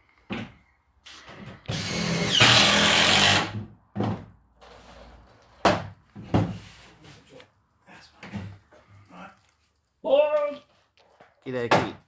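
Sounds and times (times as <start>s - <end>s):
power drill running: 1.7s - 3.5s.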